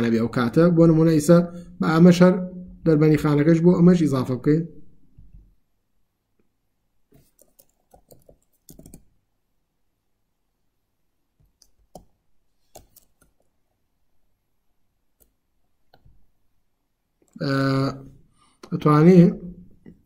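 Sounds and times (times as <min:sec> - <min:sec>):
computer keyboard typing: 0:07.2 - 0:09.1, 0:11.5 - 0:13.5.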